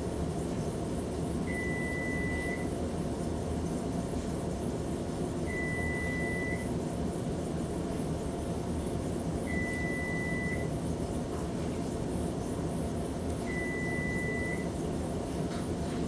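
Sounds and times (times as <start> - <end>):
low background hum: 0.0 - 16.0
oven timer beeping: 1.4 - 2.8, 5.4 - 6.7, 9.5 - 10.7, 13.4 - 14.8.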